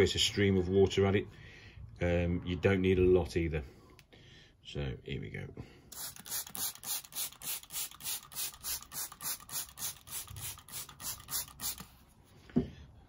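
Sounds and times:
spray bottle misting: 0:05.9 - 0:12.0.

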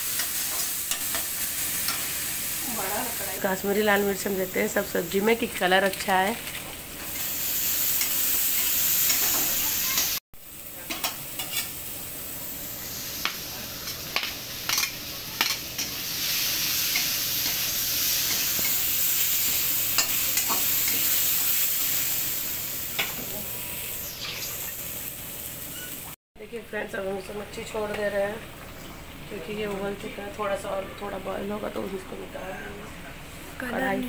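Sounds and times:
oil sizzling in a pan: 0:00.0 - 0:26.2
spatula scraping a pan: 0:11.4 - 0:11.7.

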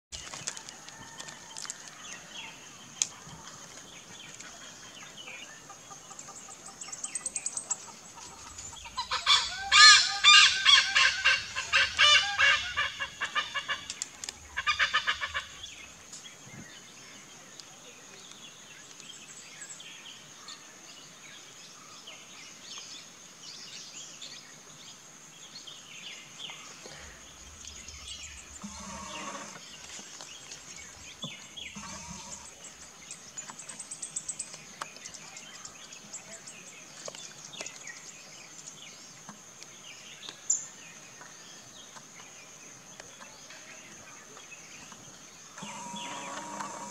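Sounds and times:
hornbill honking calls: 0:08.4 - 0:13.9, 0:28.6 - 0:29.6, 0:31.7 - 0:32.6, 0:45.6 - 0:46.9.

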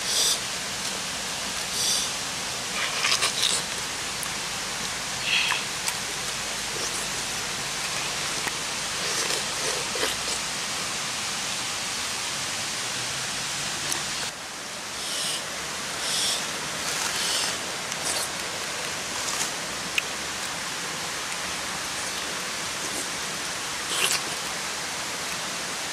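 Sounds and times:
steady background hiss: 0:00.0 - 0:25.9
chewing: 0:02.7 - 0:04.4, 0:05.2 - 0:10.9, 0:16.0 - 0:20.6, 0:21.2 - 0:23.2, 0:23.8 - 0:24.6.

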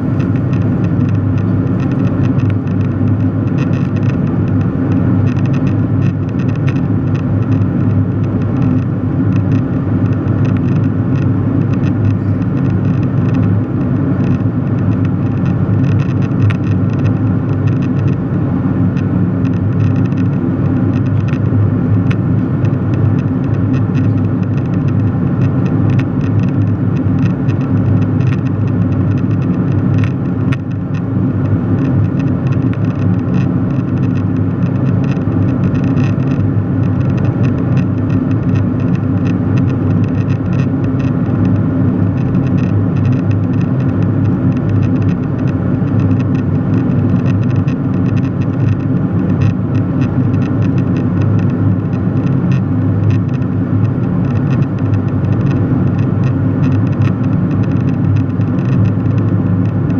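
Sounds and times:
airliner cabin drone: 0:00.0 - 0:48.0.

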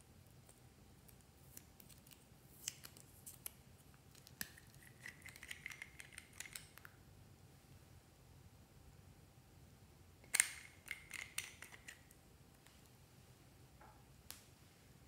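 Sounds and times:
screw cap clicking and squeaking: 0:04.2 - 0:06.8, 0:10.3 - 0:12.0.

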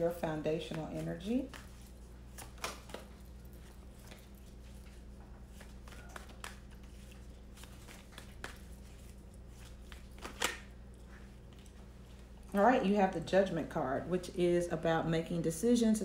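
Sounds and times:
low room hum: 0:00.0 - 0:16.0
cards tapping and clicking: 0:02.3 - 0:03.1, 0:05.6 - 0:10.7.

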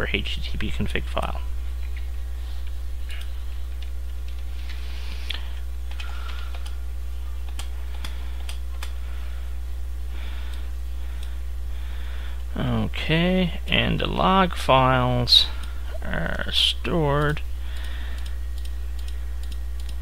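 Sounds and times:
low electrical hum: 0:00.0 - 0:20.0
keyboard and mouse clicking: 0:17.2 - 0:20.0.

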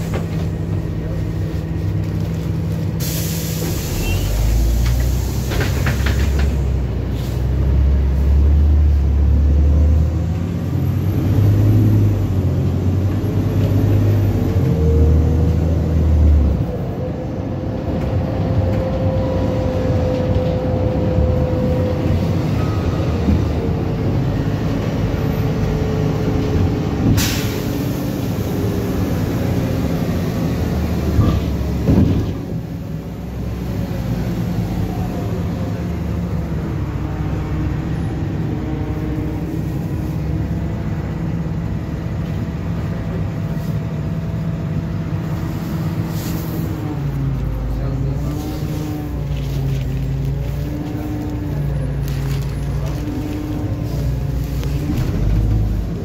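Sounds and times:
bus engine drone: 0:00.0 - 0:56.0
compressed air hiss: 0:03.0 - 0:04.3.

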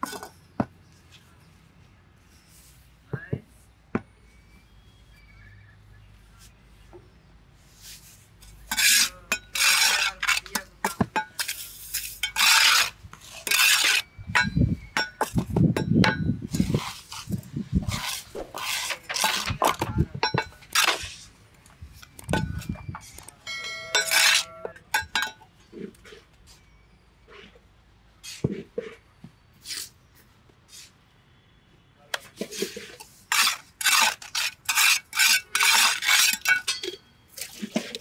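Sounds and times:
trowel scraping wet cement: 0:07.8 - 0:15.5, 0:16.4 - 0:21.3, 0:24.0 - 0:24.7, 0:32.2 - 0:38.0
ringing metallic clink: 0:22.3 - 0:25.5.

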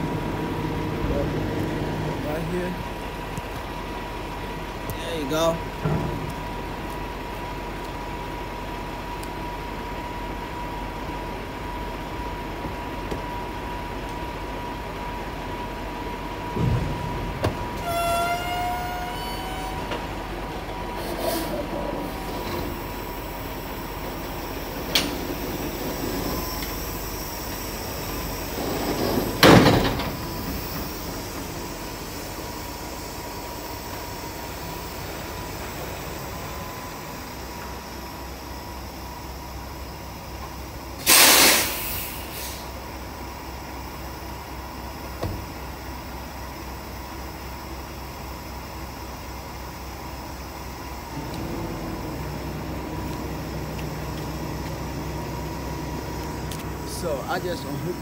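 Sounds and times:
truck engine idling: 0:00.0 - 0:58.0
truck pulling away: 0:00.0 - 0:58.0
thump: 0:05.8 - 0:06.3, 0:16.5 - 0:17.8, 0:29.4 - 0:30.2, 0:45.2 - 0:45.4
loud air hiss: 0:21.0 - 0:37.4, 0:41.0 - 0:42.8.

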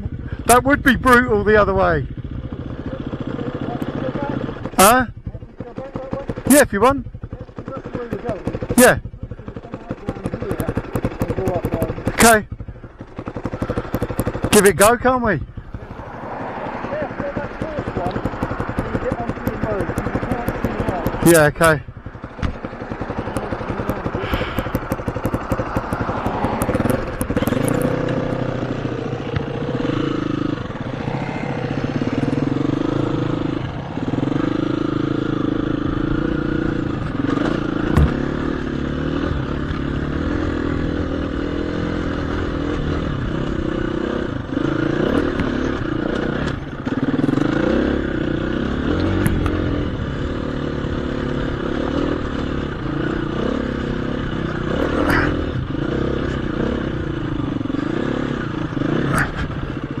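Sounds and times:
motorcycle engine revving: 0:00.0 - 1:00.0
stones knocking against bike: 0:17.4 - 0:21.2, 0:22.2 - 0:28.4, 0:29.3 - 0:29.6, 0:37.4 - 0:38.3.

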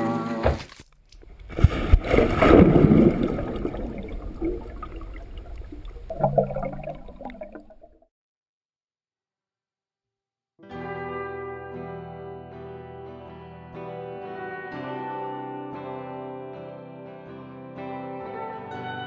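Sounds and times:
music: 0:00.0 - 0:00.6, 0:10.6 - 0:19.0
person splashing into water: 0:00.5 - 0:07.9
underwater bubbling and gurgling: 0:01.2 - 0:08.0.

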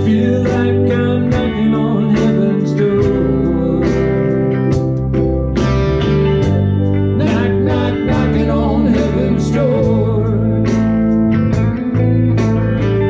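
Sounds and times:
man singing: 0:00.0 - 0:04.6, 0:07.2 - 0:11.0
bass guitar: 0:00.0 - 0:13.0
electric guitar: 0:00.0 - 0:13.0
steady drum beat: 0:04.7 - 0:12.8.

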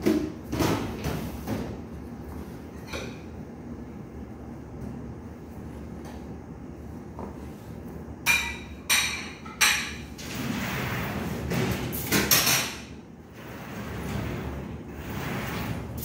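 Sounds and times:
metal kitchenware clanking: 0:08.3 - 0:10.1.

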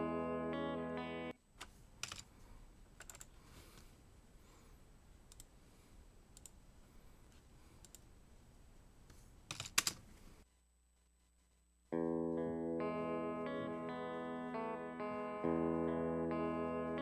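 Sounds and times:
computer keyboard keystrokes: 0:02.0 - 0:02.3, 0:03.0 - 0:03.3, 0:09.5 - 0:10.0.

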